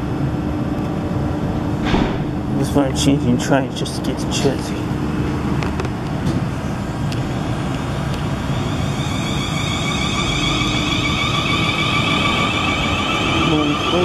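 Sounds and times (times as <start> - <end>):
traction motor whine: 5.6 - 14.0
train wheels rumbling: 5.8 - 14.0.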